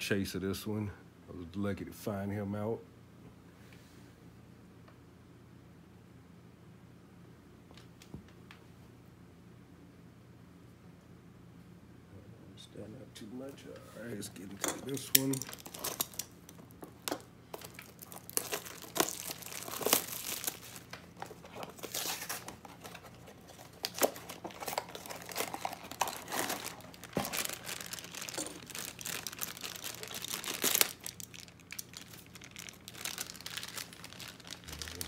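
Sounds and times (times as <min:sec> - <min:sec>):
packaging crinkling and tearing: 0:14.6 - 0:35.0.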